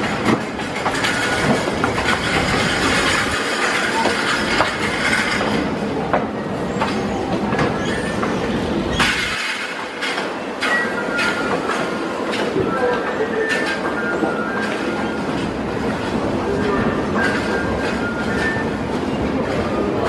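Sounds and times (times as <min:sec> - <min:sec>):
wheels knocking and clattering: 0:00.0 - 0:12.6
subway train rumbling on rails: 0:00.0 - 0:20.0.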